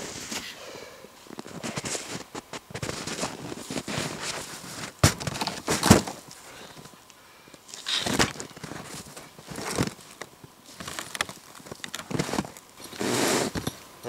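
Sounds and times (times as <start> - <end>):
rustling: 1.2 - 14.0
carcass knocking in plastic sled: 1.4 - 6.2.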